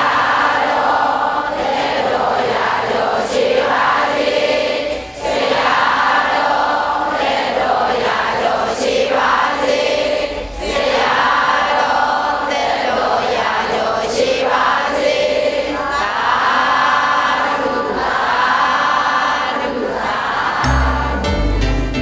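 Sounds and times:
crowd chanting in unison: 0.0s - 21.3s
music with heavy bass: 20.6s - 22.0s.

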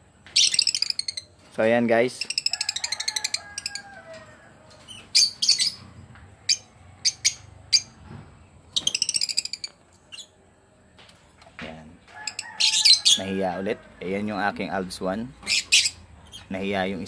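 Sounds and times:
lovebirds chirping: 0.2s - 3.9s, 4.8s - 17.0s.

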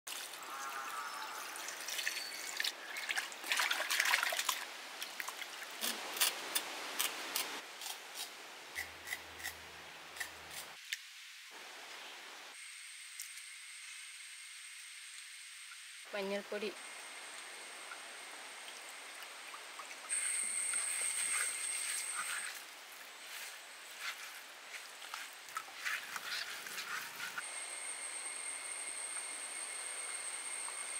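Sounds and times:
water splashing and trickling: 0.1s - 6.1s, 17.8s - 27.4s.

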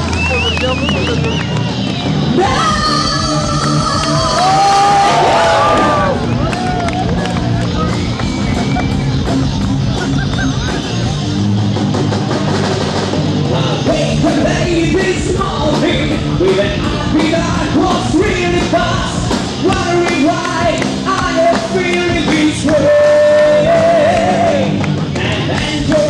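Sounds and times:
drums: 0.0s - 26.0s
person singing: 2.4s - 6.2s, 13.5s - 26.0s.

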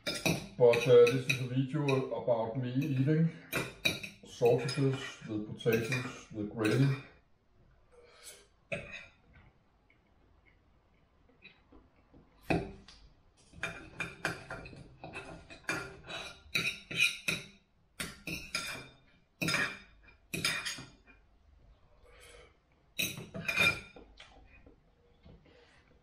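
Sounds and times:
knife and fork clinking on plate: 3.6s - 7.0s, 23.0s - 24.0s.

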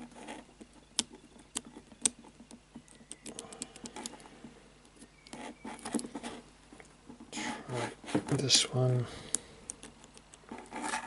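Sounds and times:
scratchy handling of lock: 0.0s - 6.4s.

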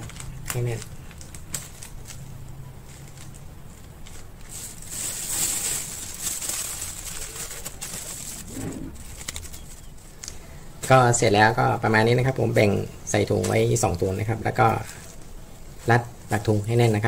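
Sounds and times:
plastic bags crinkling: 0.0s - 10.3s.

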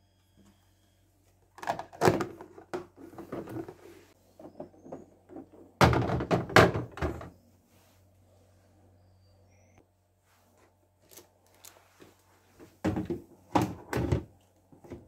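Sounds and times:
plastic containers clattering on shelf: 1.6s - 3.8s, 4.5s - 7.3s.

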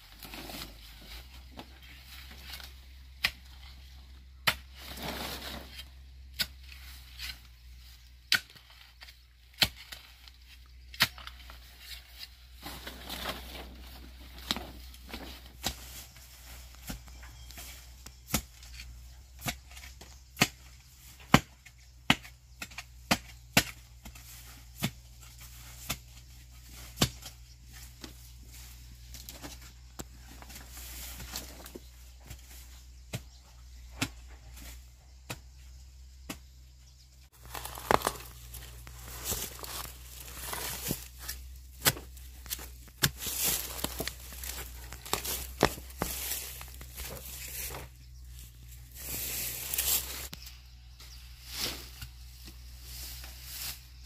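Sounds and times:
rustling: 37.3s - 54.0s
hand tool chopping: 37.4s - 47.8s.

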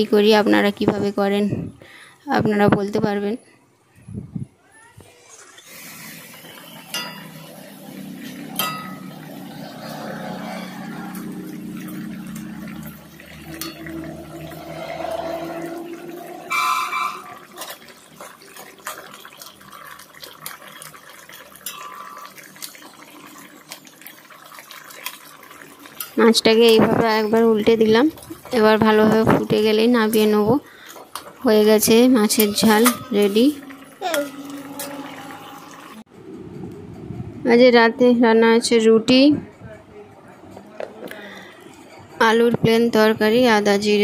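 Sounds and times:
gravy bubbling in a pan: 4.8s - 36.0s
metal spatula clinking on pan: 6.9s - 7.4s, 8.6s - 9.2s, 32.4s - 33.4s.

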